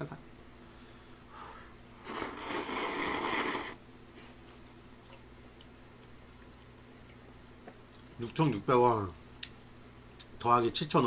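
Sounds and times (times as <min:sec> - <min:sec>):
man slurping noodles: 0:02.0 - 0:03.8.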